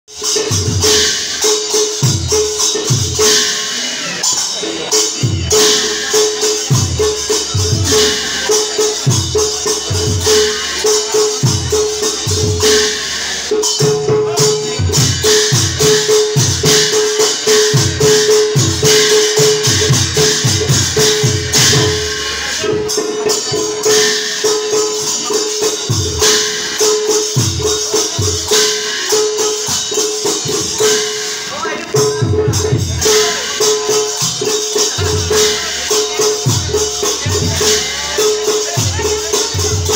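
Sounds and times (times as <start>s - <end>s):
small cymbals jingling: 0.1s - 39.9s
hand drum strokes: 0.2s - 39.9s.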